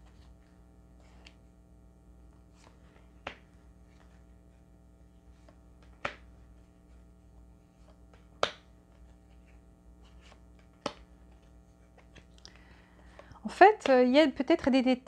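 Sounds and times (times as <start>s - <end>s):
faint card handling: 0.0s - 1.5s, 2.2s - 13.9s
cards slapping on a table: 2.6s - 4.2s, 5.4s - 6.4s, 7.8s - 12.4s.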